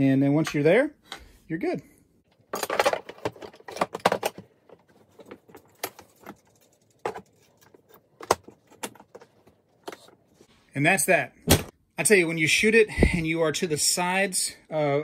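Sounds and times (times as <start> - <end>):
metal parts knocking on plastic case: 2.5 - 6.4.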